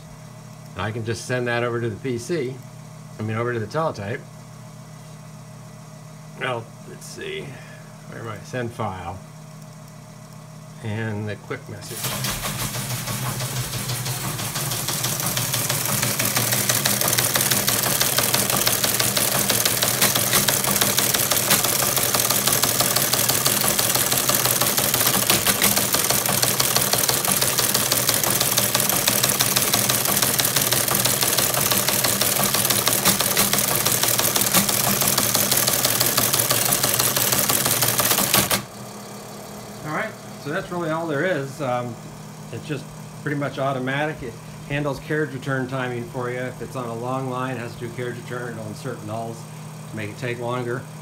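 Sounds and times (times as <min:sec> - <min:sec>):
motor hum: 0:00.0 - 0:51.0
teleprinter clattering: 0:11.9 - 0:38.7.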